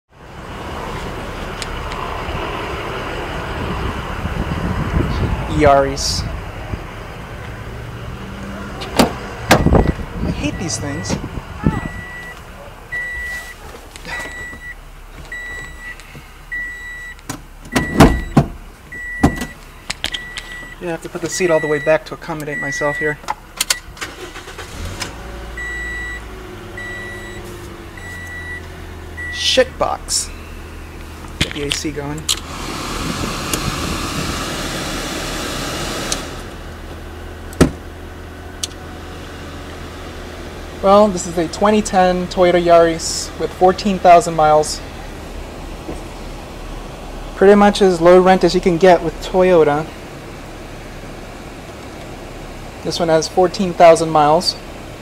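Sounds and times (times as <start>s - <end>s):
idling engine hum: 0.1s - 55.0s
knocks and clunks inside car: 8.9s - 10.0s, 17.3s - 19.6s, 37.6s - 37.8s
car warning chime beeping: 9.6s - 11.2s, 11.8s - 19.6s, 20.2s - 23.2s, 25.6s - 29.6s
blower fan rushing: 32.3s - 37.6s.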